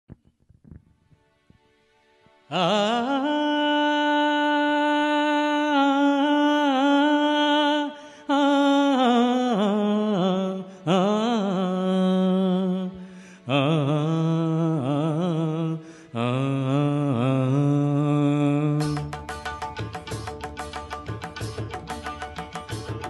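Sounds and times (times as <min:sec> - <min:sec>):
man singing with vibrato: 0:02.5 - 0:20.6.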